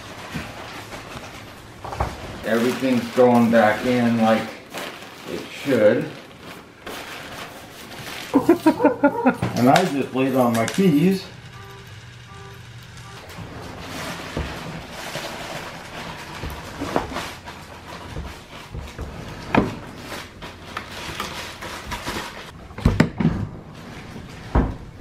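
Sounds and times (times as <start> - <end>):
dishwasher scraping and rustling: 0.0 - 4.6, 13.0 - 25.0.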